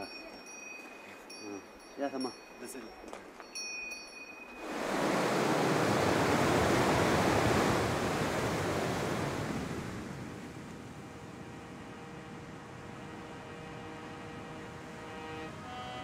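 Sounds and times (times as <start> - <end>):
river rushing over boulders: 4.6 - 10.2.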